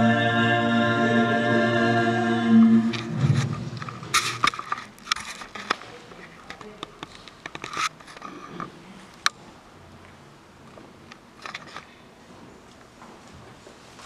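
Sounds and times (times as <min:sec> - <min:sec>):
recorded choir singing a hymn: 0:00.0 - 0:03.6.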